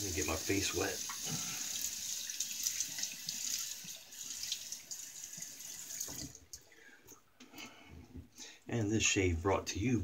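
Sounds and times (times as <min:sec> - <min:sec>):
water running from sink tap: 0:00.0 - 0:06.4.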